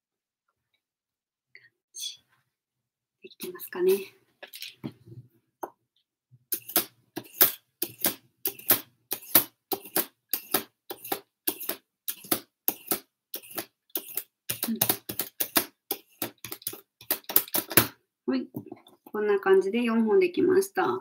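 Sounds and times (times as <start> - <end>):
vegetable peeler scraping asparagus: 6.5 - 17.9.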